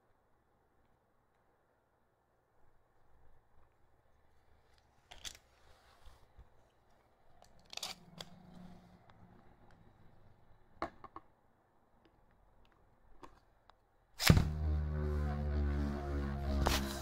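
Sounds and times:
launcher string ripped: 14.2 - 17.0
spinning top humming: 14.3 - 17.0.

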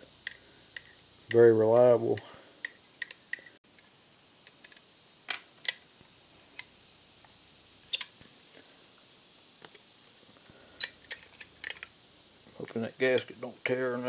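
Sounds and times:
metal parts clicking on workbench: 7.9 - 8.2, 10.4 - 11.9.

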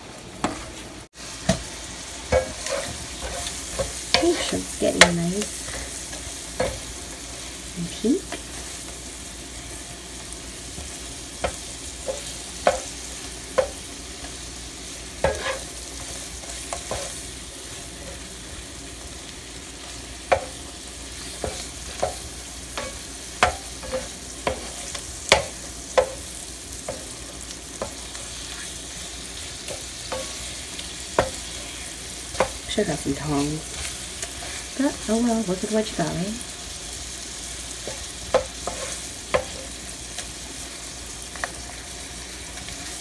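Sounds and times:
shrimp sizzling in butter: 0.4 - 43.0
spatula tapping and scraping pan: 2.3 - 7.4, 10.7 - 14.4, 15.2 - 17.2, 20.2 - 28.8, 29.6 - 34.7, 37.8 - 40.3.

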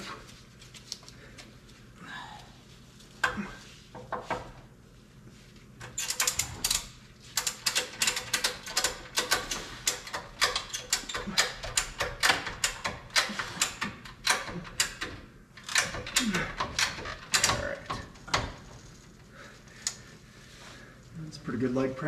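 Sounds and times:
hand ratchet clicking: 5.8 - 18.9.

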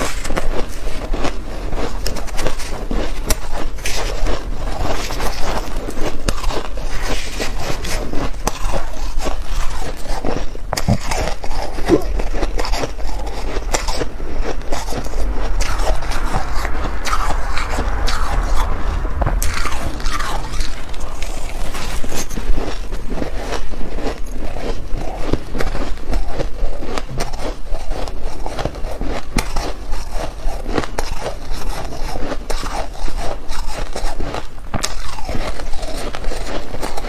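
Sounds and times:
metal spoon scraping ice: 0.0 - 16.0
ice being crunched and chewed: 0.0 - 37.0.

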